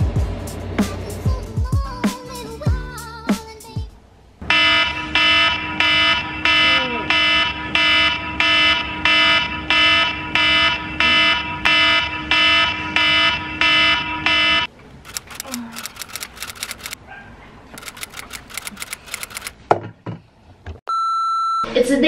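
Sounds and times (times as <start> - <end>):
smartphone alarm beeping: 20.9 - 21.7.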